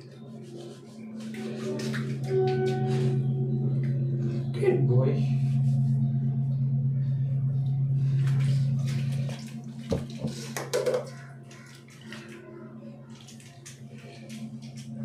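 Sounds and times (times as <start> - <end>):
low hum: 0.0 - 15.0
water splashing on tiled floor: 8.2 - 15.0.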